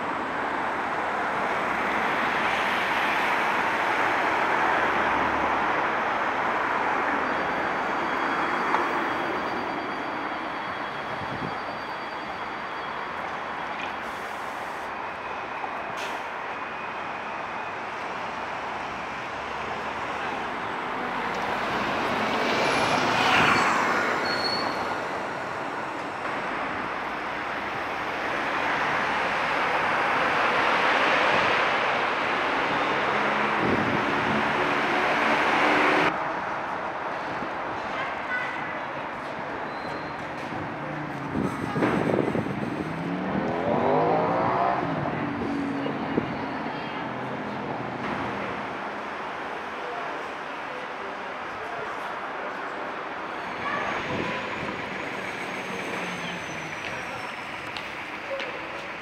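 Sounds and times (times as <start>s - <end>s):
road and rail traffic noise: 0.0s - 59.0s
high squeal: 7.1s - 15.8s, 22.5s - 25.2s, 53.3s - 58.1s.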